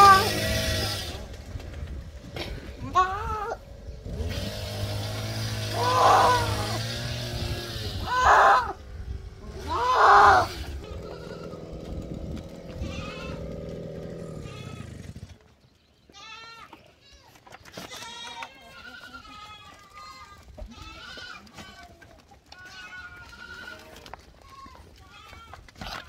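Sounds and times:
goats bleating: 0:00.0 - 0:01.2, 0:02.8 - 0:03.6, 0:05.7 - 0:08.8, 0:09.5 - 0:15.0, 0:16.1 - 0:26.0.

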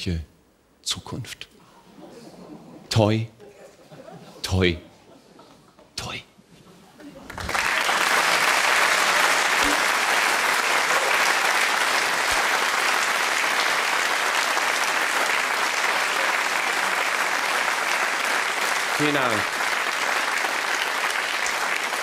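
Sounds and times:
audience applauding: 0:07.2 - 0:22.0.

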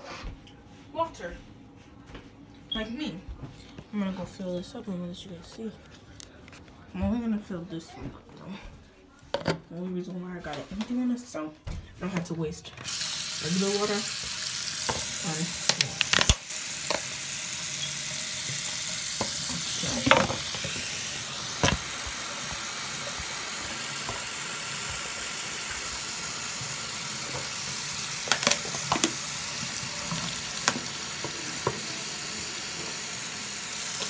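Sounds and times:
faucet running: 0:12.9 - 0:34.0
water filling plastic bottle: 0:12.9 - 0:34.0.

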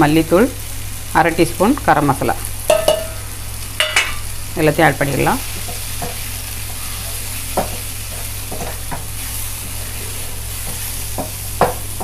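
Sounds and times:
frying sizzle: 0:00.0 - 0:12.0
low steady hum: 0:00.0 - 0:12.0
wooden spatula scraping a pan: 0:05.6 - 0:12.0.

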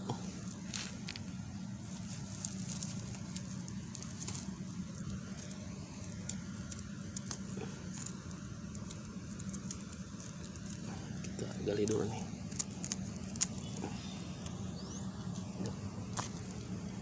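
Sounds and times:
steady low hum: 0:00.0 - 0:17.0
stones clicking together: 0:02.3 - 0:14.6.

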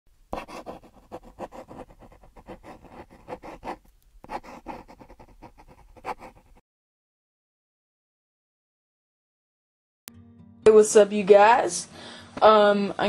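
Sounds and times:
pencil sketching on paper: 0:00.3 - 0:06.6.

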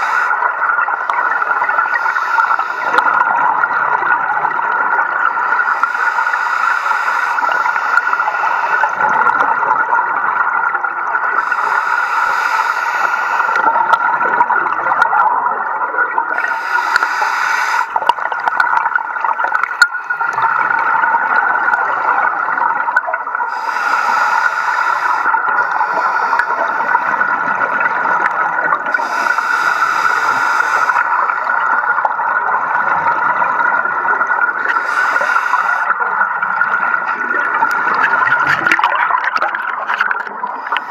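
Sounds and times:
regulator breathing hiss: 0:00.0 - 0:00.4, 0:01.3 - 0:03.0, 0:05.4 - 0:09.0, 0:11.4 - 0:13.6, 0:16.4 - 0:18.1, 0:23.5 - 0:27.2, 0:28.9 - 0:31.4, 0:34.7 - 0:35.9
underwater bubbling rumble: 0:08.9 - 0:11.4, 0:13.6 - 0:16.5, 0:35.8 - 0:40.9.

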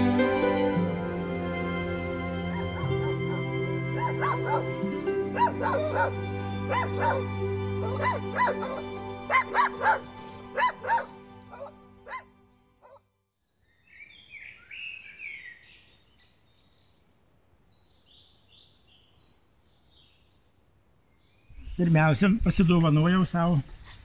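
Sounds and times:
background music: 0:00.0 - 0:13.0
dog barking: 0:02.5 - 0:13.0
birds chirping and singing: 0:02.5 - 0:20.4.

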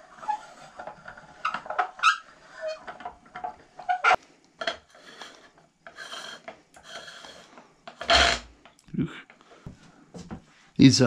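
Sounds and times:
soft metal rubbing: 0:00.0 - 0:08.6.

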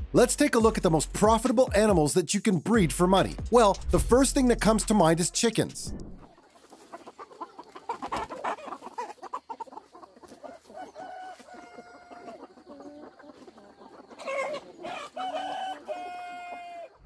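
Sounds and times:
chickens clucking: 0:05.9 - 0:17.0
drawn-out chicken calls: 0:06.2 - 0:17.0.

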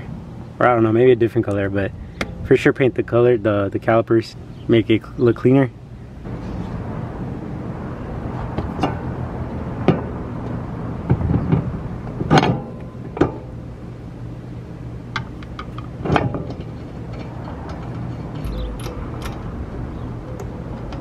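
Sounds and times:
steady low hum: 0:00.0 - 0:21.0
car wheel clunking onto hub: 0:09.8 - 0:13.6, 0:15.0 - 0:20.1
lug nuts fitted by hand: 0:15.0 - 0:21.0.

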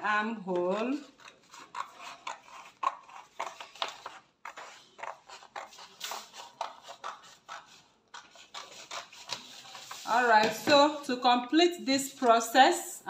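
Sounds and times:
scissors snipping paper: 0:00.5 - 0:09.9.

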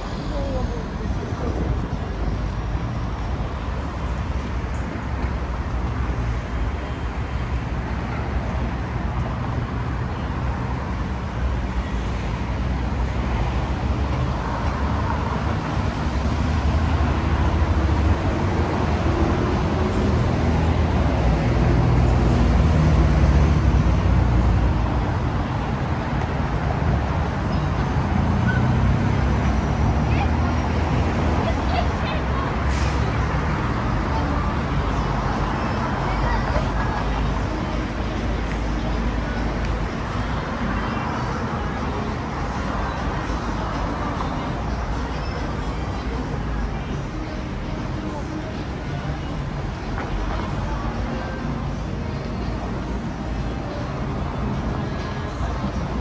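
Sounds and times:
busy road traffic: 0:00.0 - 0:56.0
heavy vehicle engine drone: 0:00.0 - 0:56.0.

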